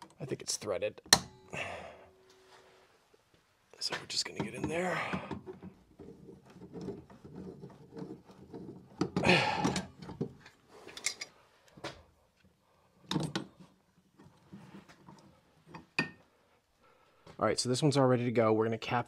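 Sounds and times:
pipe wrench clanking on pipe: 0:04.4 - 0:10.3.

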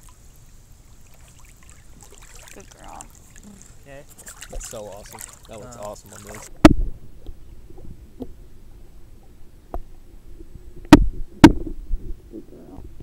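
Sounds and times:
muffled underwater rumble: 0:06.3 - 0:13.0.

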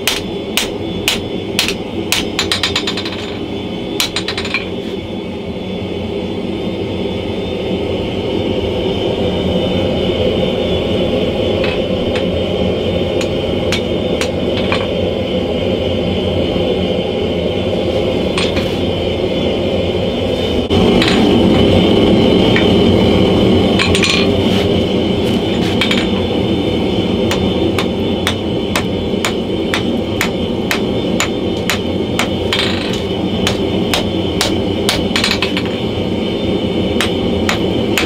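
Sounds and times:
hammer striking metal on anvil: 0:00.0 - 0:03.4, 0:04.0 - 0:04.7, 0:27.3 - 0:35.8
forge running: 0:00.0 - 0:05.6, 0:07.5 - 0:38.0.

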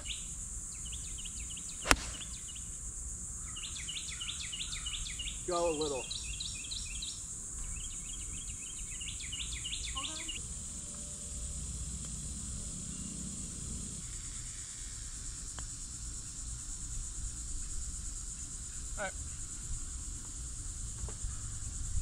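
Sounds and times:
bird chirping: 0:00.0 - 0:02.8, 0:03.4 - 0:11.4
insects droning in trees: 0:00.0 - 0:22.0
low outdoor rumble: 0:10.2 - 0:17.5.

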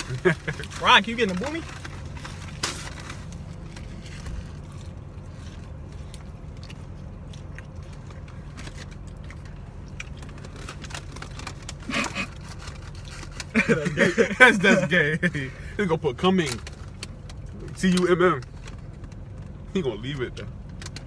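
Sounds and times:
food wrappers rustling: 0:00.0 - 0:15.5
low hum inside a car: 0:00.0 - 0:21.0.

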